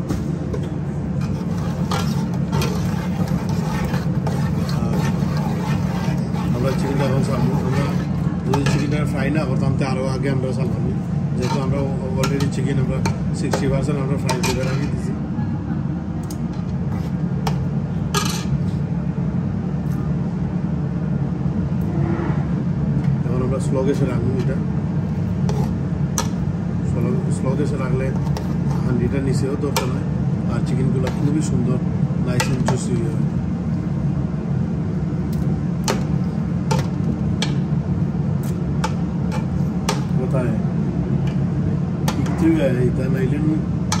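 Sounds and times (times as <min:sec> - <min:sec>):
low kitchen hum: 0:00.0 - 0:44.0
low rumble of gas range and ventilation: 0:00.0 - 0:44.0
scraping in a pot: 0:01.1 - 0:09.2, 0:11.3 - 0:15.1, 0:16.5 - 0:17.6, 0:25.2 - 0:25.9, 0:27.7 - 0:30.0, 0:30.6 - 0:31.5.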